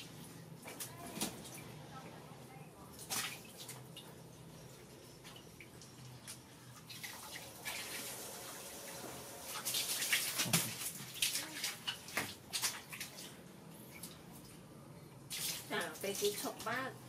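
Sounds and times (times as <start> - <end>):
garden hose running: 4.6 - 12.0, 15.3 - 17.0
water splashing and pouring: 6.7 - 13.4.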